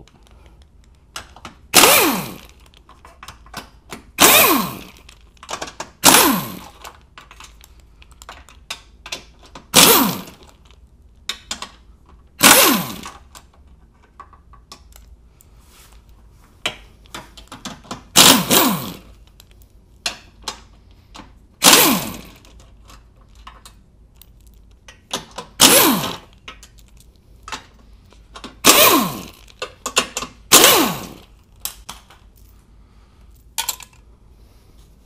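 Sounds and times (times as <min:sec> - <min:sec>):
impact wrench hammering: 0:01.7 - 0:02.5, 0:04.2 - 0:05.0, 0:06.0 - 0:06.8, 0:09.7 - 0:10.4, 0:12.4 - 0:13.2, 0:18.1 - 0:19.1, 0:21.6 - 0:22.4, 0:25.4 - 0:26.3, 0:28.6 - 0:31.3.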